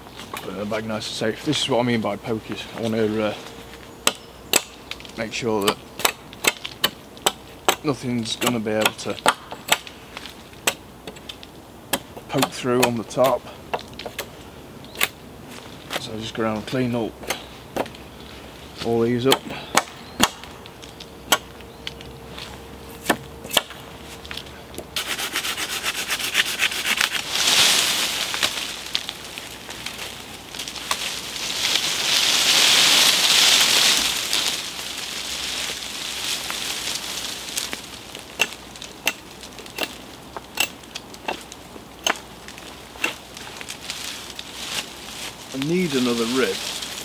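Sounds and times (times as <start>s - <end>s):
hatchet chopping wood: 4.0s - 4.8s, 5.7s - 10.0s, 10.6s - 11.2s, 11.9s - 14.3s, 19.2s - 20.5s, 21.3s - 21.5s, 23.0s - 23.8s, 38.4s - 40.0s, 40.6s - 42.3s, 43.0s - 43.2s
axe chopping wood: 5.7s - 9.9s, 19.2s - 20.5s, 21.3s - 21.5s, 23.0s - 23.8s
hatchet scraping strokes: 25.0s - 28.6s, 43.0s - 43.4s.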